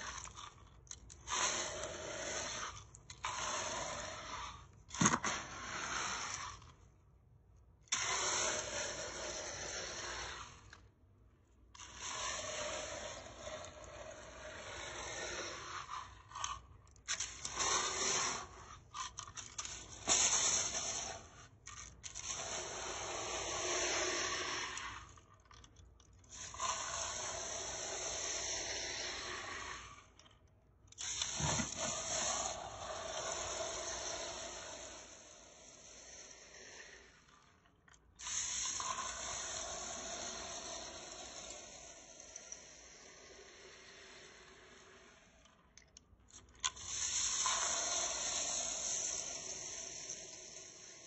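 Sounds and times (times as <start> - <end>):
vacuum nozzle sucking up grains: 0.0 - 6.8, 7.9 - 10.9, 11.7 - 25.6, 26.3 - 30.2, 31.0 - 37.4, 38.2 - 45.2, 46.6 - 51.0.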